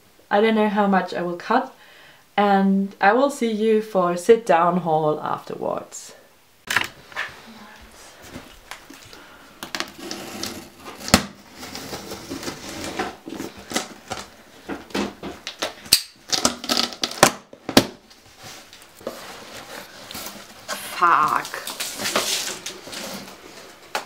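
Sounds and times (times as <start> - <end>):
cardboard package being opened: 8.8 - 14.4, 15.4 - 24.0.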